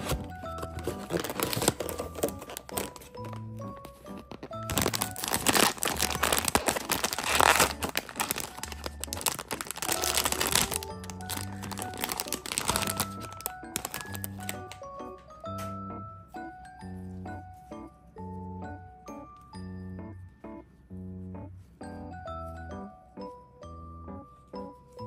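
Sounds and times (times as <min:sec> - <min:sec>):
plastic bag crinkling: 0:00.0 - 0:14.8
background music: 0:00.0 - 0:25.0.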